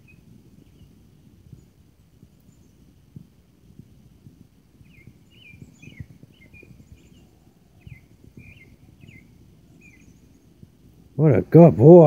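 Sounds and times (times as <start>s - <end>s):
faint bird chirping: 0.0s - 3.2s, 4.7s - 11.6s
soft low rustles and taps: 0.5s - 9.2s.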